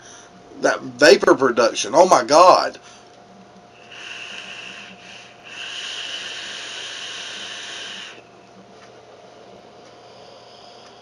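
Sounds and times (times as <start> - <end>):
hissing vape draw: 3.8 - 8.2.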